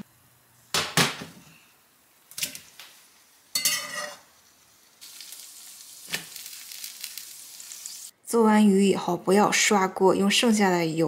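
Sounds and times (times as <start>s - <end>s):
fish sizzling in butter: 2.0s - 8.1s
metal spatula scraping frying pan: 3.5s - 4.3s.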